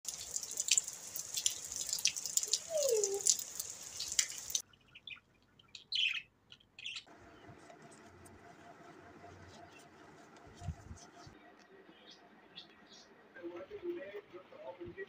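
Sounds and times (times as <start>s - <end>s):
heavy rain splashing on concrete: 0.1s - 4.6s
budgerigars chirping: 5.8s - 7.1s.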